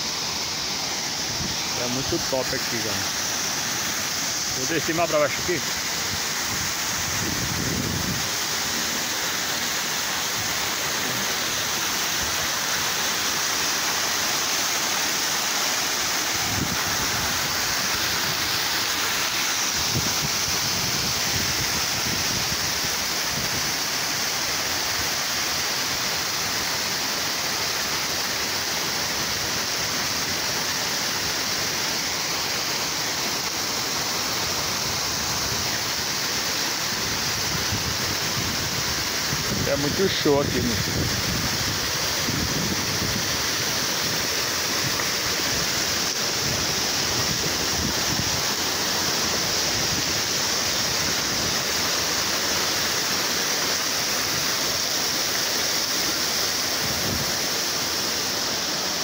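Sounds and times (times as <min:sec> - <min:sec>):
waterfall splashing onto rocks: 0:00.0 - 0:59.0.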